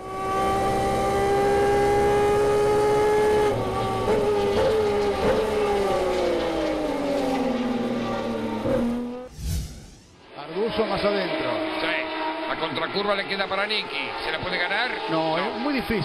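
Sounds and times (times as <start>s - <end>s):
race car engine at high revs: 0.0s - 6.3s.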